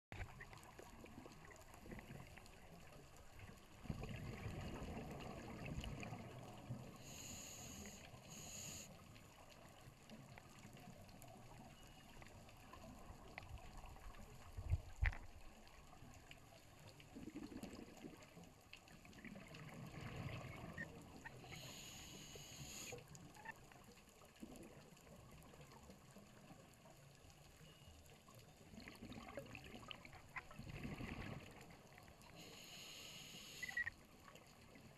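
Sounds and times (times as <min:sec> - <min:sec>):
scuba diver breathing underwater: 0:07.0 - 0:08.9, 0:21.4 - 0:23.0, 0:32.3 - 0:33.9.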